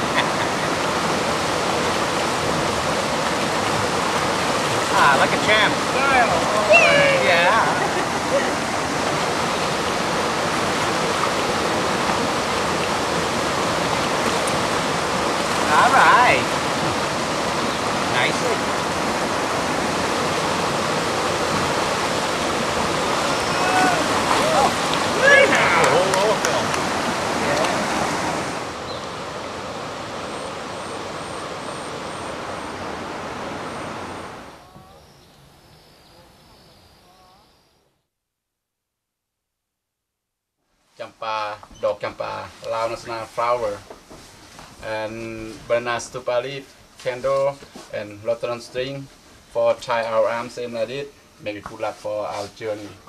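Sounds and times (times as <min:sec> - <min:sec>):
river rapids rushing: 0:00.0 - 0:34.6
soft chirping calls: 0:06.7 - 0:07.2.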